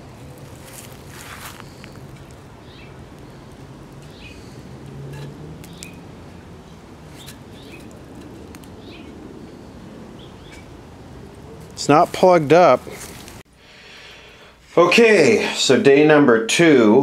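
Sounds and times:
small bird chirping: 0:01.4 - 0:04.6, 0:05.6 - 0:08.0, 0:08.6 - 0:10.8.

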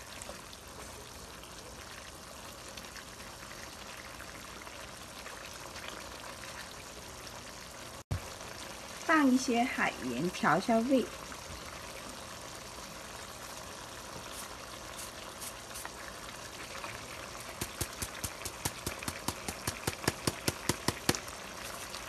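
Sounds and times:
braise simmering in a pan: 0:00.0 - 0:22.0
salt shaker ticking: 0:17.4 - 0:21.2.

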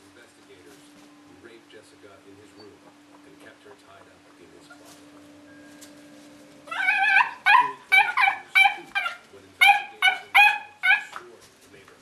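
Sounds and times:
puppy barking: 0:06.7 - 0:11.3.

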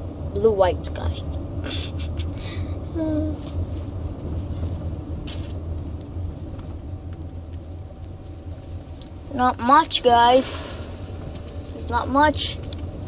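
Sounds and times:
vehicle driving rumble: 0:00.0 - 0:13.0
brief hiss: 0:05.2 - 0:05.6.

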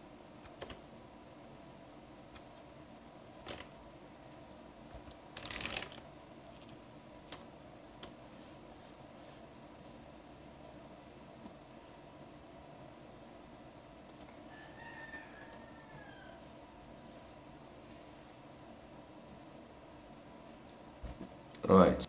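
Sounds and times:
crickets chirping: 0:00.0 - 0:22.0
faint rooster crowing: 0:14.2 - 0:17.2.

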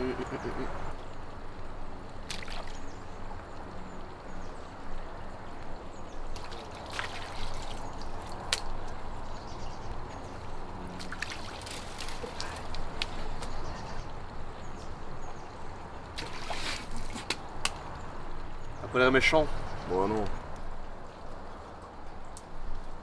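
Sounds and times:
pond water splashing: 0:00.0 - 0:03.4, 0:06.2 - 0:09.6, 0:10.3 - 0:14.2, 0:15.7 - 0:18.0.

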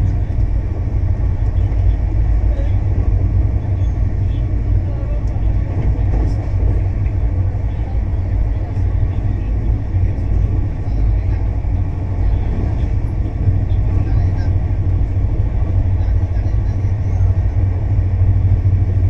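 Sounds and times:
train deep rumble: 0:00.0 - 0:19.0.

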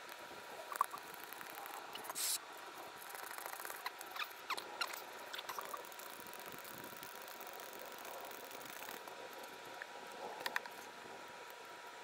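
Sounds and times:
brief hiss: 0:02.0 - 0:02.4.

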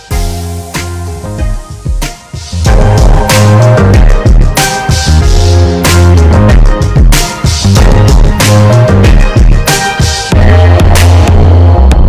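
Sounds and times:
background music with drums: 0:00.0 - 0:12.0
heavy sustained bass line: 0:02.6 - 0:04.5, 0:10.3 - 0:12.0.

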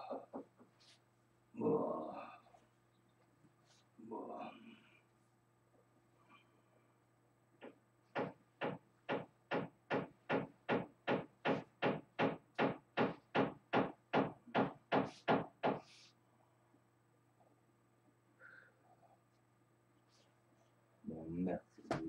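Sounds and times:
hammer knocking: 0:07.6 - 0:15.9.

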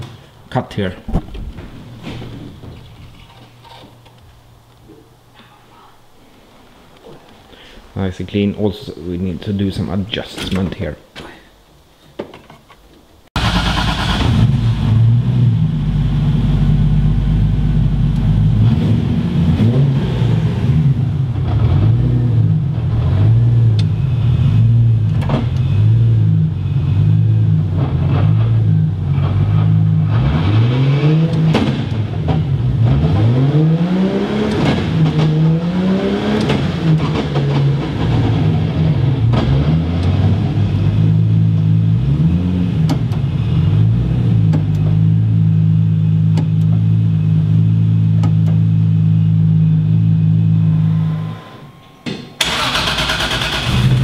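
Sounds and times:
car engine idling and revving: 0:13.4 - 0:51.2, 0:52.4 - 0:54.0.

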